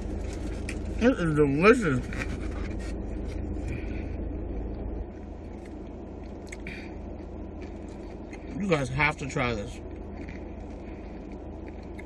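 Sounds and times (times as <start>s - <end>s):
low rumble inside a car: 0.0s - 12.0s
plastic fork scraping takeout food: 1.7s - 3.6s.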